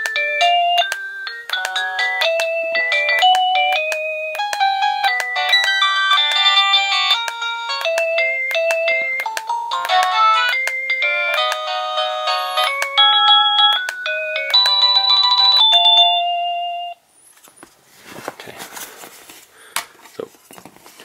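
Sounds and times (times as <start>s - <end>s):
doorbell chime tunes: 0.1s - 17.0s
rustling: 17.2s - 21.0s.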